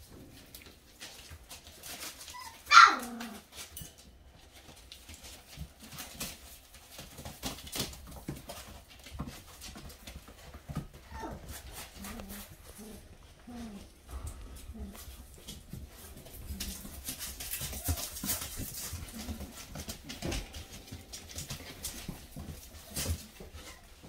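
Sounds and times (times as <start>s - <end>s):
paws scratching paper: 0.0s - 24.0s
puppy yelping: 2.2s - 3.5s, 11.0s - 13.9s.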